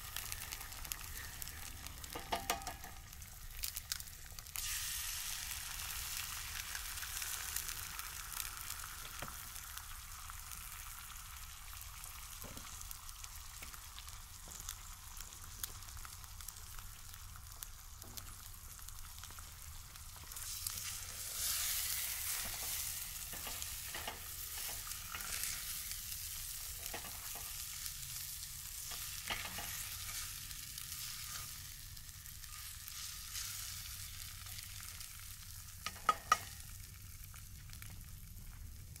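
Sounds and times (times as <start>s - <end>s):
eggs sizzling in skillet: 0.0s - 39.0s
utensil scraping pan: 28.9s - 30.2s.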